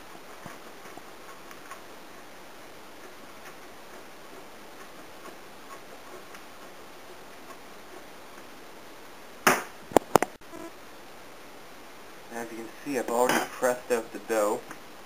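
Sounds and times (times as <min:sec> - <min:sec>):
steady hiss: 0:00.0 - 0:15.0
cheese grating on metal grater: 0:02.9 - 0:08.2.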